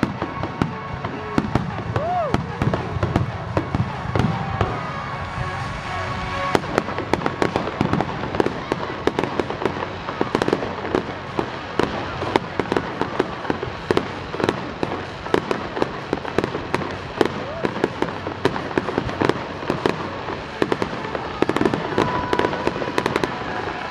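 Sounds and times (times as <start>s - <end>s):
fireworks bangs and crackles: 0.0s - 23.9s.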